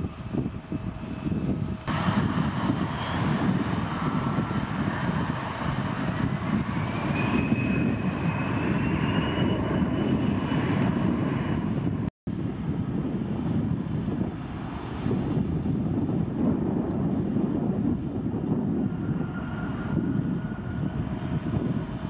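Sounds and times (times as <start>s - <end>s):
jet engines rumbling and whining: 0.0s - 22.0s.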